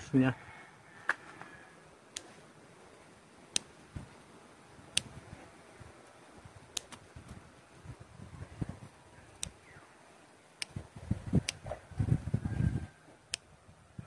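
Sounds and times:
leaves rustling: 0:00.0 - 0:14.0
scissors snipping twigs: 0:06.7 - 0:07.4, 0:09.3 - 0:09.8.

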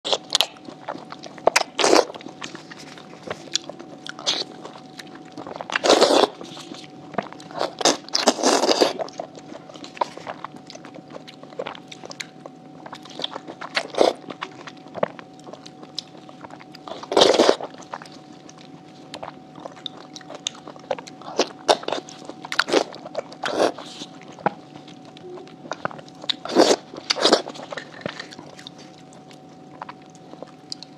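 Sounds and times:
wet biting and chewing: 0:00.1 - 0:30.9.

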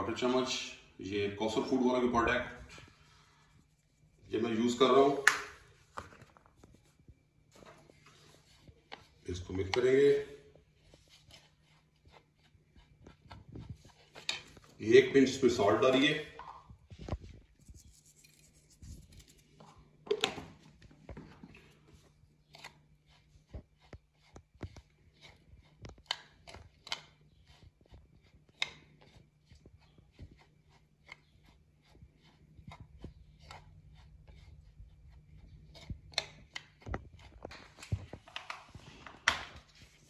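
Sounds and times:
plastic spoon scraping breadcrumbs: 0:07.9 - 0:19.6, 0:21.6 - 0:39.0.

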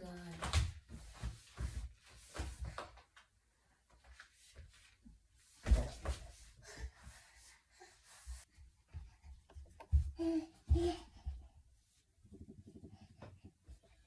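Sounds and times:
laundry rustling: 0:00.0 - 0:07.4.

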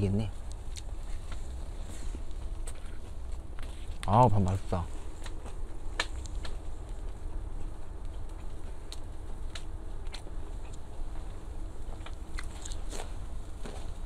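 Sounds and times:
steady low rumble: 0:00.0 - 0:14.0
person chewing food: 0:00.5 - 0:04.1, 0:08.0 - 0:14.0
sharp clicks and crunches: 0:05.2 - 0:14.0.

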